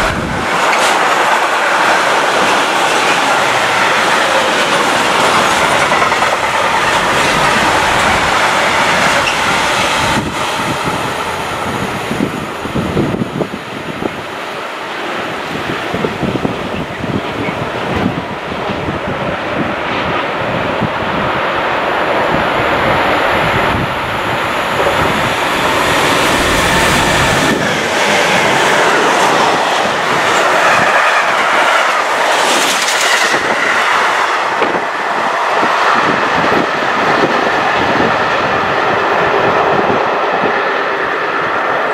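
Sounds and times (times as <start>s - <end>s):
freight train wheels rumbling on rails: 0.0s - 41.9s.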